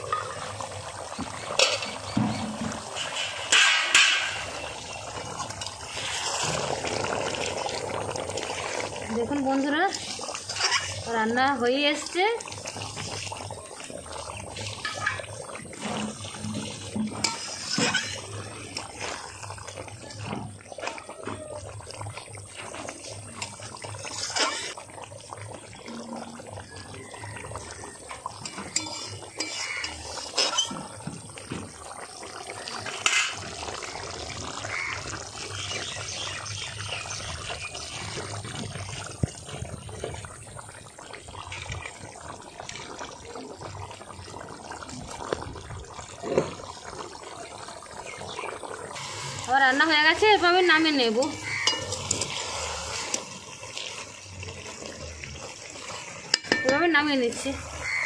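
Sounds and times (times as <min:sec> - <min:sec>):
curry bubbling in a pot: 0:00.0 - 0:58.0
utensil clinking against pot: 0:51.4 - 0:52.4, 0:56.3 - 0:56.9.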